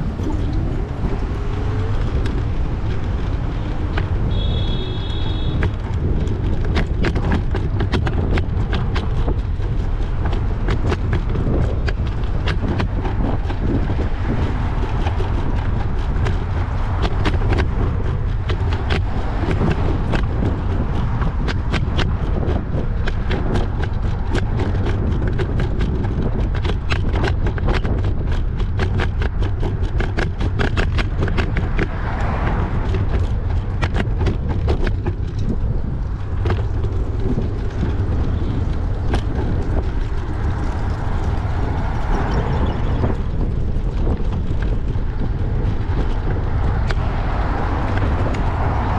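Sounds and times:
bicycle clicks and rattles: 0:00.0 - 0:48.9
wind buffeting microphone: 0:00.0 - 0:48.9.

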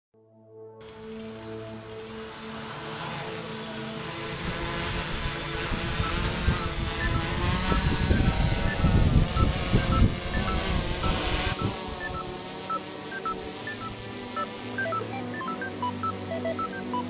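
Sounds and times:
drone motors and propellers spinning: 0:00.8 - 0:17.0.

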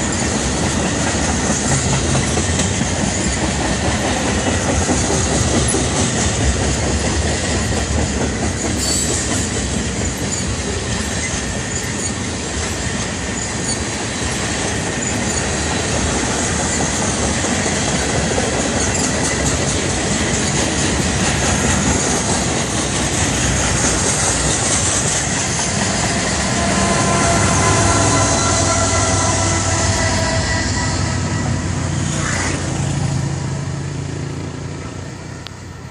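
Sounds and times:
train wheels rumbling on rails: 0:00.0 - 0:35.9
wheel squeal: 0:08.5 - 0:15.8
humming drone: 0:25.5 - 0:33.8.

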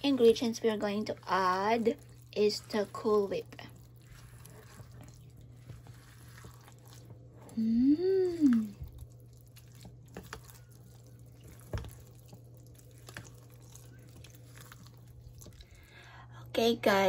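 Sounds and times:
spatula stirring wet mixture: 0:00.0 - 0:16.3
steady low hum: 0:00.0 - 0:17.0
person humming mmm: 0:07.5 - 0:08.8.

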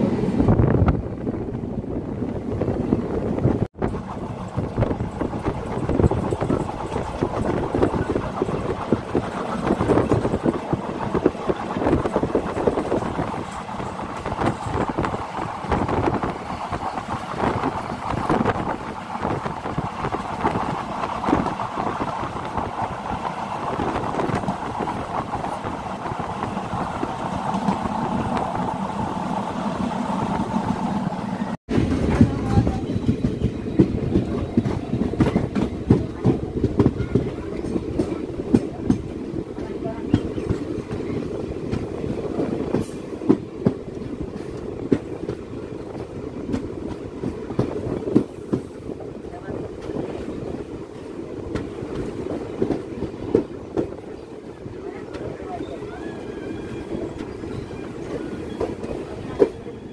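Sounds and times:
wind rushing: 0:00.0 - 0:39.6
train wheels rattling on track: 0:00.0 - 0:59.9.

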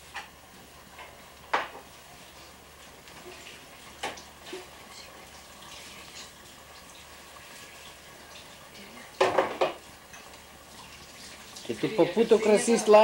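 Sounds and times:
dishes and utensils clattering: 0:09.2 - 0:10.4.

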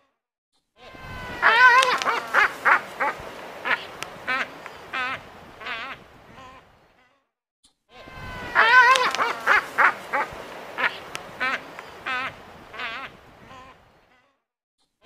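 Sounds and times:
albatrosses calling: 0:00.9 - 0:06.8, 0:08.0 - 0:14.0.

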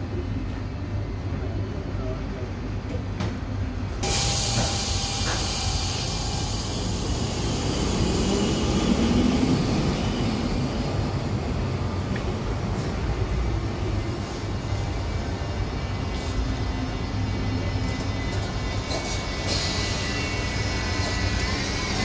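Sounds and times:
tram rumbling: 0:00.0 - 0:22.0
sustained hiss: 0:04.0 - 0:10.4.

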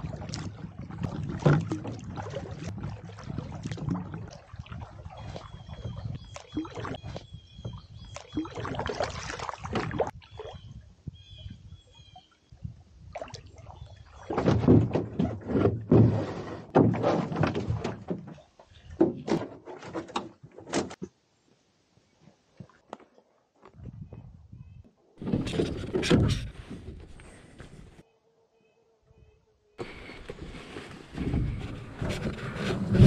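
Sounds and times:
canoe hull knocking and thudding: 0:00.1 - 0:04.2, 0:14.3 - 0:21.0.

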